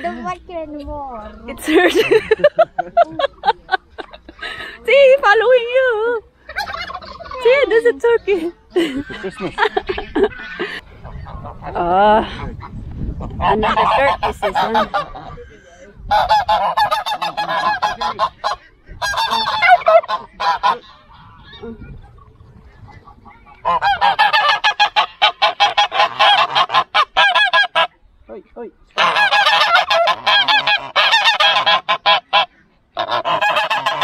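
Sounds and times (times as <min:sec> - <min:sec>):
geese honking: 0:06.4 - 0:28.0, 0:28.9 - 0:34.0.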